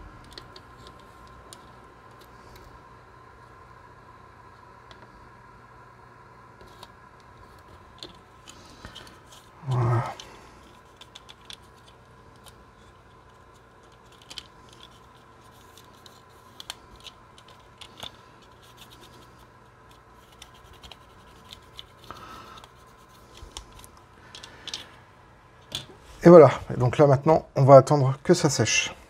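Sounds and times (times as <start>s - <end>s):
plastic model clicks and scratches: 0.2s - 2.7s, 6.6s - 24.9s.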